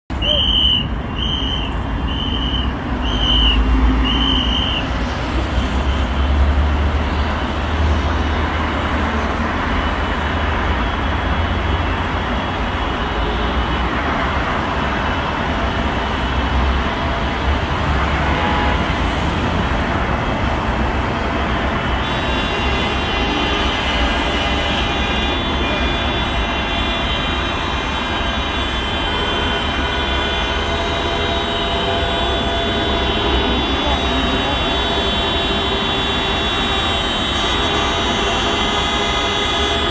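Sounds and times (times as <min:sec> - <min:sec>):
highway traffic rumble: 0:00.0 - 0:39.9
car horns sounding: 0:00.1 - 0:06.4, 0:09.8 - 0:39.9
sirens wailing: 0:14.6 - 0:39.9.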